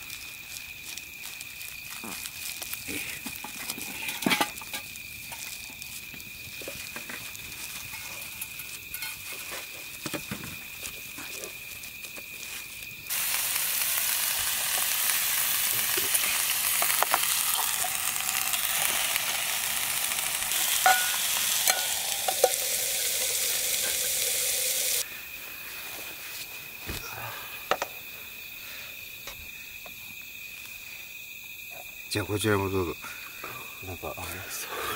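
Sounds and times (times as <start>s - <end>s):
food sizzling in a pan: 1.4s - 9.3s, 13.0s - 25.0s.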